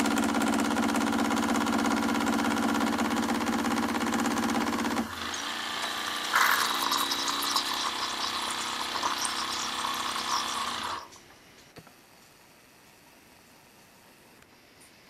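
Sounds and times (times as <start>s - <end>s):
coffee machine hissing and sputtering: 0.1s - 11.2s.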